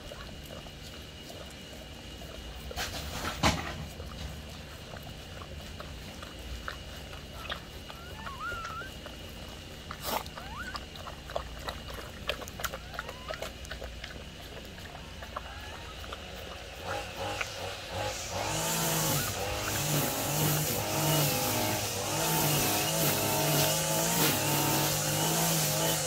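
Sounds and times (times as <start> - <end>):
wet suckling clicks: 3.9 - 18.2
puppies squeaking: 7.3 - 16.6, 18.7 - 20.5.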